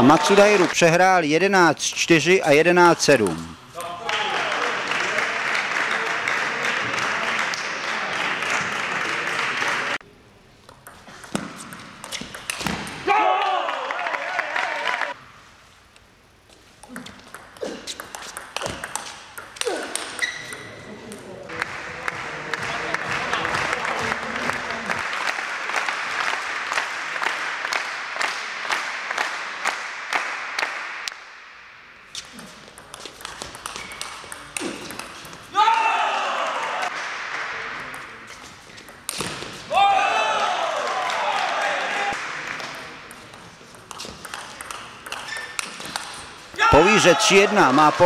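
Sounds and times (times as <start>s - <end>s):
crowd applauding: 0.0s - 0.8s, 4.0s - 10.0s, 21.5s - 30.8s.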